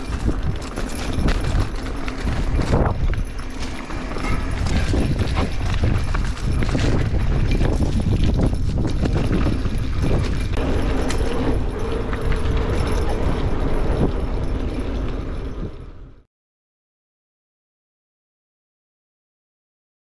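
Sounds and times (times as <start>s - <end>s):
bike rattling over bumps: 0.0s - 16.1s
wind rushing on microphone: 0.0s - 16.2s.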